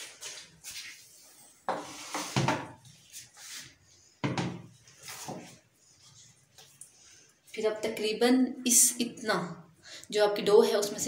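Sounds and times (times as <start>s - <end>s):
hand swishing flour on countertop: 1.7s - 3.8s.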